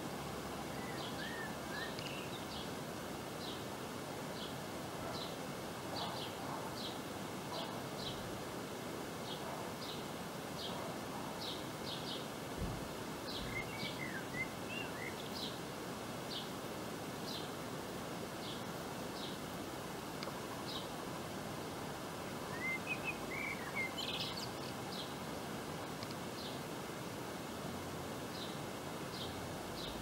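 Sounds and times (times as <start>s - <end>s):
steady background hiss: 0.0s - 30.0s
bird chirping: 0.7s - 2.7s, 13.3s - 15.6s, 22.5s - 25.2s.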